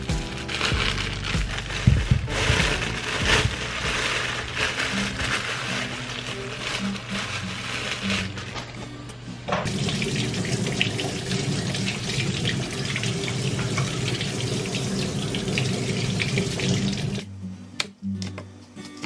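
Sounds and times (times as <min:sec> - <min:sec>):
tap water running into sink: 0:09.6 - 0:17.2.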